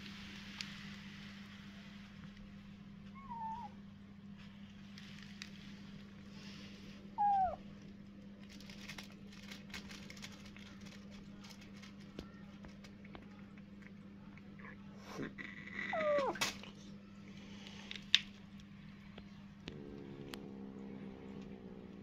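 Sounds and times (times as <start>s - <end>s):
steady low hum: 0.0s - 22.0s
cats eating off plastic bag: 4.2s - 22.0s
cat mewing: 7.2s - 7.6s, 15.2s - 16.5s.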